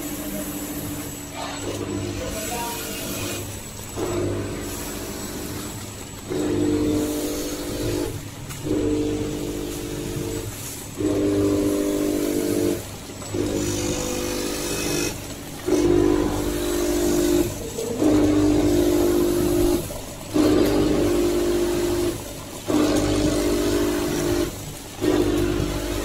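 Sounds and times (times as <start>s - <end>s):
low machine hum: 0.0s - 26.0s
packing machine motor humming: 0.0s - 26.0s.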